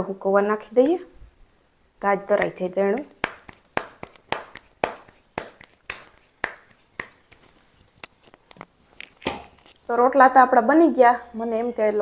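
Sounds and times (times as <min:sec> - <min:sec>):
dough patted between palms: 0:02.0 - 0:07.7.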